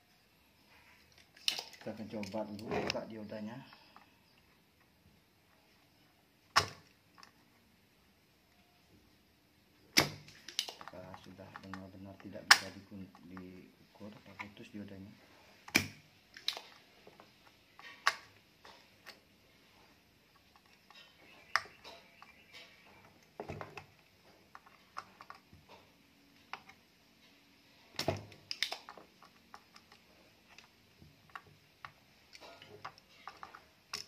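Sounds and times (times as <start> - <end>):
tools clicking and tapping: 20.3 - 34.0.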